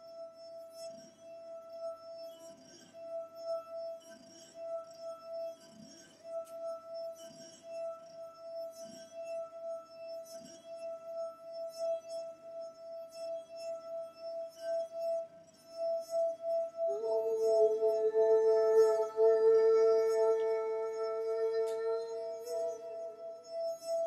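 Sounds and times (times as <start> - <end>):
singing wine glass tone: 16.5 - 24.0.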